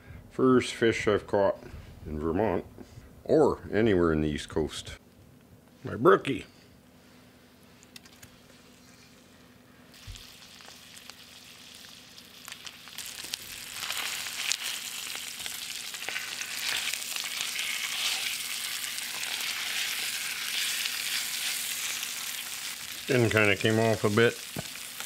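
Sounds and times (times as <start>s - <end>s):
fish sizzling in a pan: 9.9s - 25.0s
frying pops and crackles: 9.9s - 25.0s.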